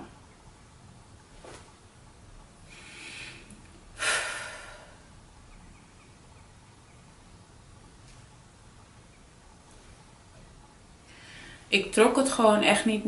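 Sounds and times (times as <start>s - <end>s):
sharp breath through nose: 2.7s - 5.0s
woman breathing in softly: 2.7s - 5.1s, 11.1s - 11.7s.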